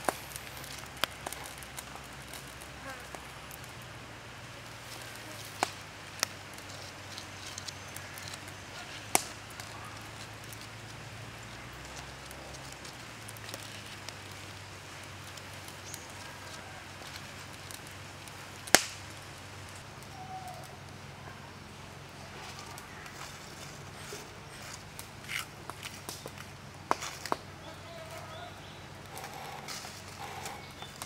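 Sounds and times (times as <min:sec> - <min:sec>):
sharp fire pops: 0:00.0 - 0:03.8, 0:04.9 - 0:19.8, 0:24.8 - 0:27.5
campfire embers crackling: 0:00.0 - 0:31.0
faint background noise: 0:00.0 - 0:31.0.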